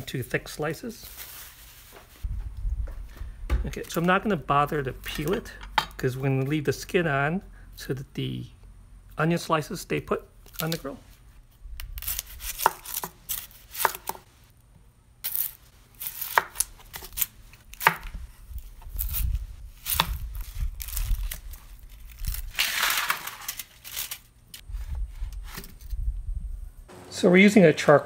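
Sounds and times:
rustling: 1.0s - 3.2s
knife slicing onions on cutting board: 12.0s - 14.2s.

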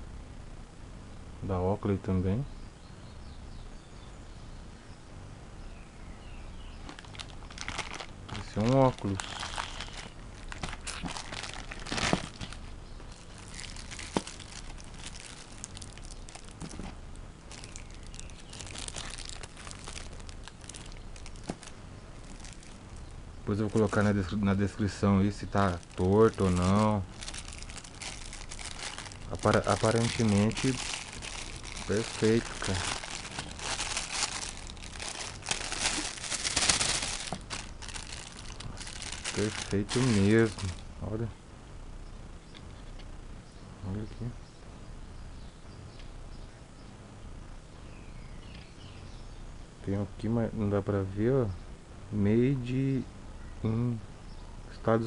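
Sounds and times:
plastic wrapping crinkling: 6.8s - 40.8s.

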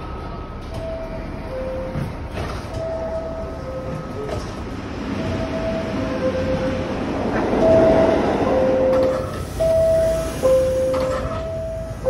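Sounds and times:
train noise: 0.0s - 12.0s
two-tone door chime: 7.6s - 12.0s.

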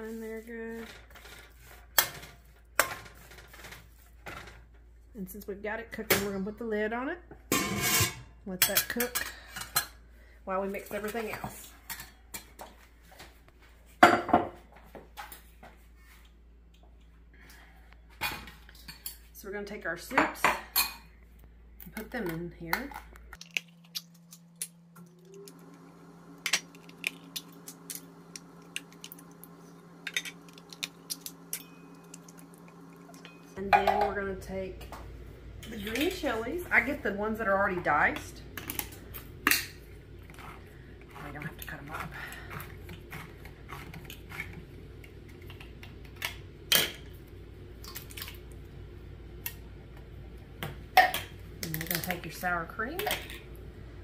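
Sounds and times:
steady low hum: 14.7s - 54.0s.

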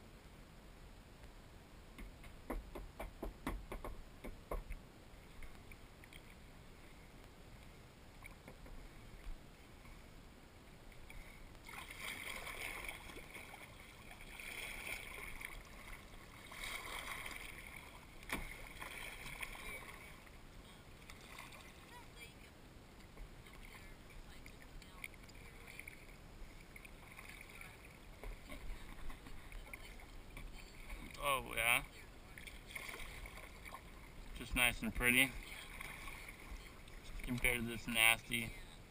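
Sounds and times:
paddle splashing through water: 10.9s - 22.1s, 23.0s - 31.2s, 31.9s - 34.4s, 35.1s - 38.0s.

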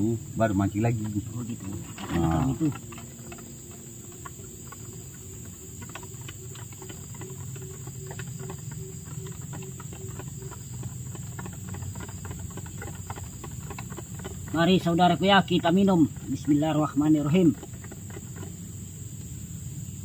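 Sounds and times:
insects droning: 0.0s - 20.0s
small irregular clicks and crackles: 0.8s - 14.8s, 17.3s - 18.6s.

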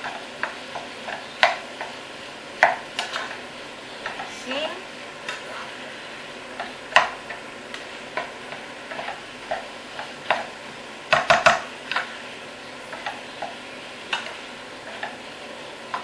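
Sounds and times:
minced meat sizzling in pot: 0.0s - 16.0s
range hood fan running: 0.0s - 16.0s
spoon scraping pot: 8.1s - 10.5s.

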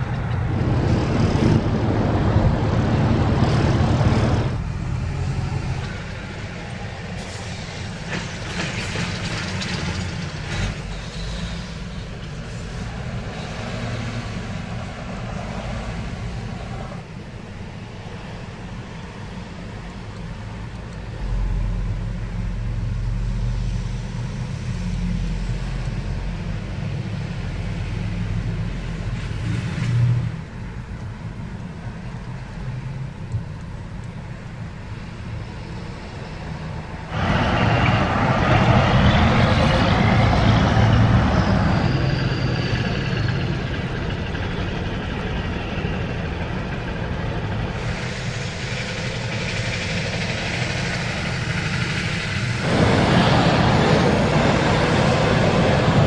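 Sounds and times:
traffic passing: 0.0s - 56.0s
high falling squeal: 37.1s - 46.0s.

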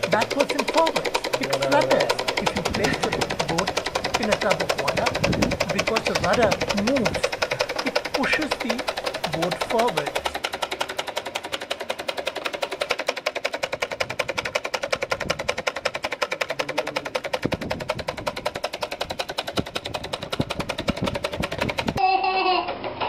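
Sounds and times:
toy motor clicking: 0.0s - 22.6s
children laughing: 0.1s - 10.3s, 21.8s - 23.0s.

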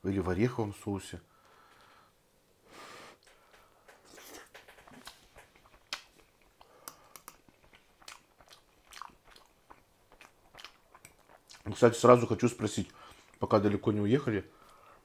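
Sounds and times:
chewing mashed potato: 3.2s - 13.6s.

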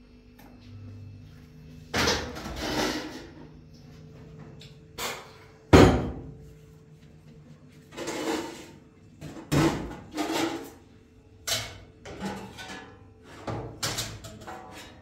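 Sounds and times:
kitchen knocks and bumps: 5.7s - 6.3s.

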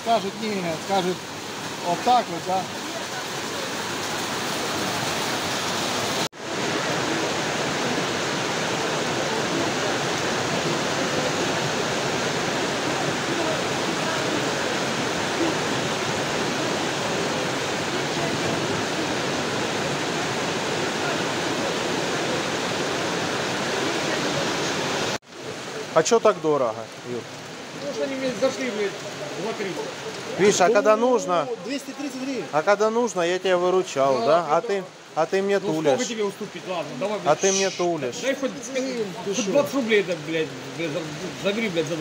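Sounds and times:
heavy rain: 0.0s - 42.0s.

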